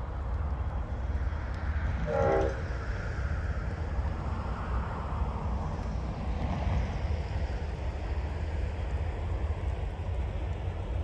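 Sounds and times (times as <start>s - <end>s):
low rumble: 0.0s - 5.1s
locomotive horn blast: 2.0s - 2.7s.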